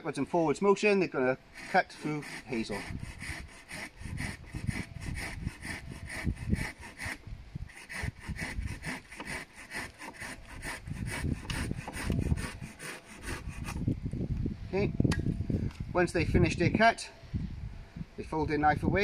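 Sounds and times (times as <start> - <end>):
hand saw cutting wood: 1.5 - 13.8.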